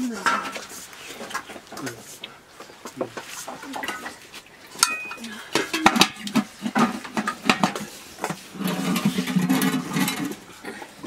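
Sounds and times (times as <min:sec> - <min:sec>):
metal pots knocking and clinking: 0:00.0 - 0:00.7, 0:03.7 - 0:11.0
cookware rattling scrape: 0:04.8 - 0:10.5.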